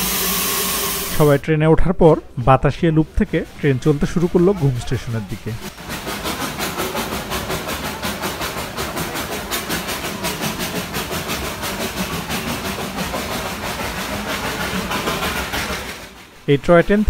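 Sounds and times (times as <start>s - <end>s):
steam hiss: 0.0s - 1.4s, 5.4s - 16.4s
steam train chugging: 0.0s - 1.4s, 2.8s - 17.0s.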